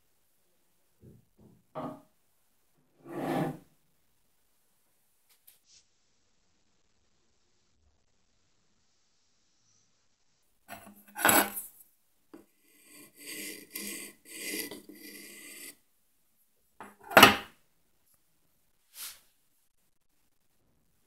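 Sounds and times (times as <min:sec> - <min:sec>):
metal file rasping on wood: 0:10.7 - 0:11.6, 0:12.7 - 0:15.8.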